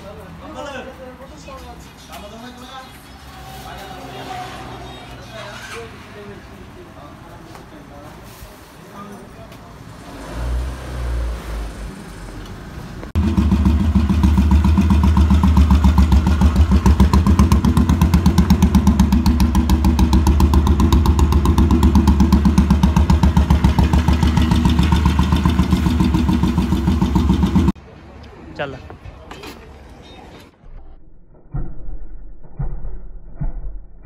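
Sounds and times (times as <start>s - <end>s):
motorcycle engine idling: 13.2s - 27.8s.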